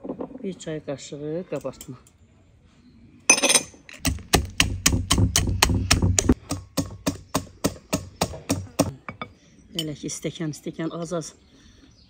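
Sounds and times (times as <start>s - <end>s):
dull low knock: 4.4s - 7.1s.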